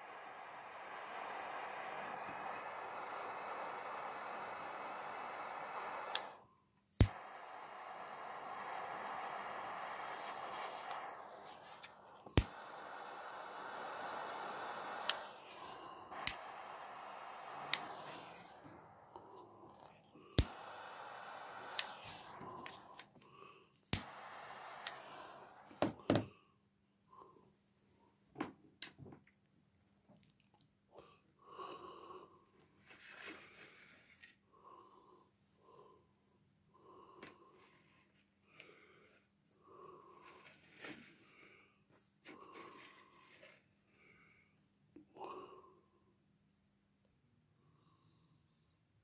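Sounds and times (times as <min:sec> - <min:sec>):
gas flame hissing: 0:00.0 - 0:26.3
person breathing near microphone: 0:00.0 - 0:28.2, 0:31.0 - 0:46.0, 0:47.6 - 0:48.8
lighter clicking: 0:00.2 - 0:06.4, 0:07.0 - 0:23.1, 0:23.9 - 0:25.7
sharp clicks: 0:10.3 - 0:12.8, 0:15.0 - 0:18.7, 0:20.3 - 0:20.8, 0:23.9 - 0:25.5.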